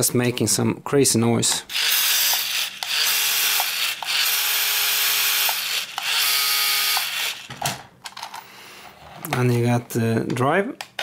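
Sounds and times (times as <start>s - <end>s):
servo whirring with gear grinding: 1.7s - 7.5s.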